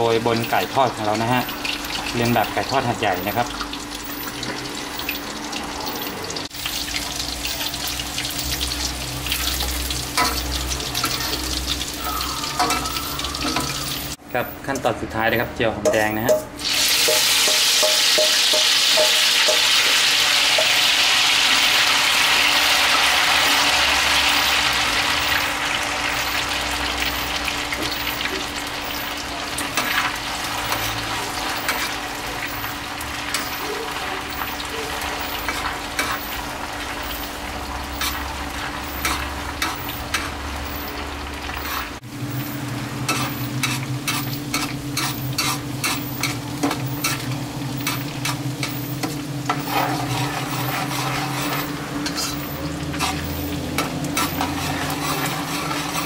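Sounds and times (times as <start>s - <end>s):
shallots deep-frying in oil: 0.0s - 56.0s
spatula scraping a wok: 33.4s - 36.5s, 37.9s - 40.4s, 41.5s - 56.0s.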